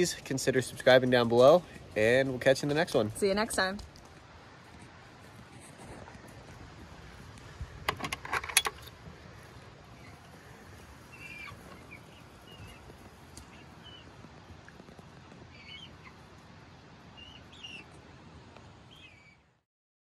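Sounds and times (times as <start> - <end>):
faint steady hiss: 0.0 - 19.6
chicks peeping: 9.4 - 16.3, 17.1 - 18.0.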